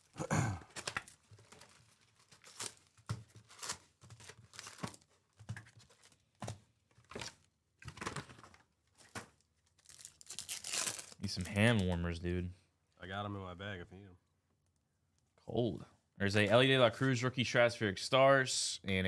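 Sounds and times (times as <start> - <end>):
foil packs crinkling and rustling: 0.6 - 11.8.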